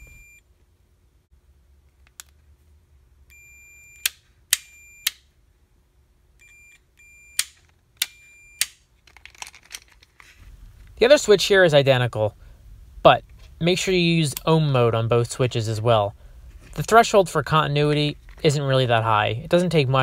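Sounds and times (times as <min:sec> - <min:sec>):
multimeter high beeps: 0:06.4 - 0:07.4.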